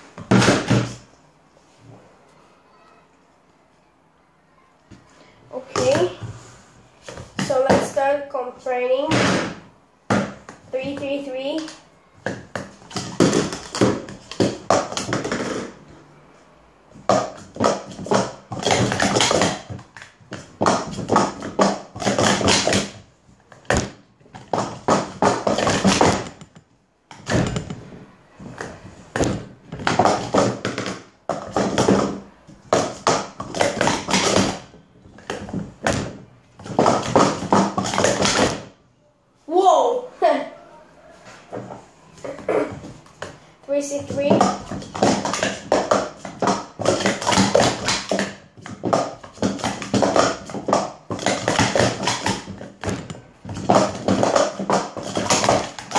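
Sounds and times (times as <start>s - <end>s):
plastic cups clattering: 11.6s - 15.9s, 17.0s - 27.8s, 28.4s - 38.7s, 44.0s - 55.9s.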